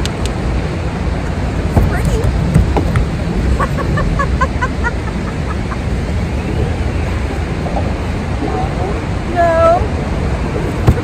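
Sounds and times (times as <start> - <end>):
low wind: 0.0 - 11.0
water noise: 0.0 - 11.0.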